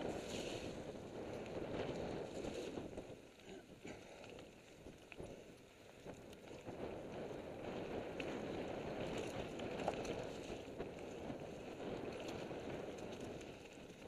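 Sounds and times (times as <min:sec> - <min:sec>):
bike tyres on dirt trail: 0:00.0 - 0:14.0
wind on microphone: 0:00.0 - 0:14.0
bike rattles and knocks: 0:07.7 - 0:14.0.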